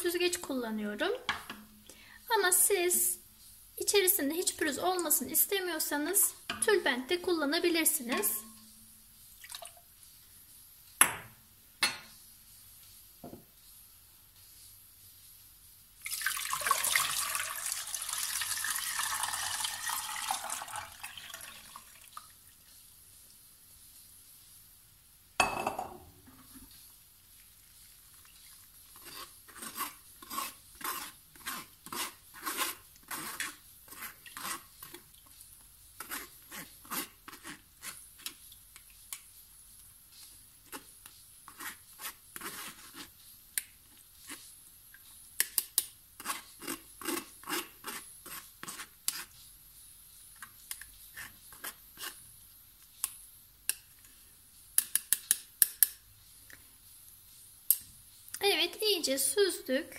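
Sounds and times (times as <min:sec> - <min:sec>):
spoon scraping mesh sieve: 0:04.4 - 0:08.9, 0:27.9 - 0:35.4, 0:36.0 - 0:38.5, 0:40.2 - 0:43.3, 0:46.2 - 0:49.5, 0:50.3 - 0:52.3.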